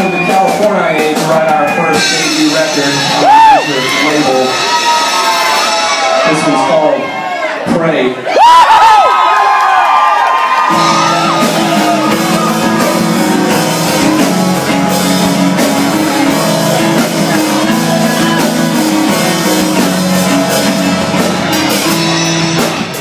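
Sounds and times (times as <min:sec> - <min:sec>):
acoustic guitar chords: 0:10.7 - 0:23.0
electric bass notes: 0:10.7 - 0:23.0.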